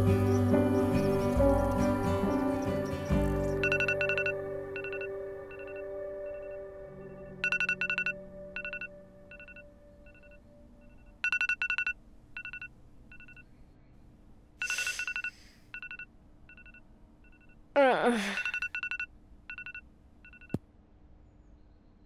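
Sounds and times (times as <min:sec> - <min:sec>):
smartphone alarm beeping: 0:01.1 - 0:13.4, 0:14.6 - 0:17.6, 0:18.3 - 0:20.6.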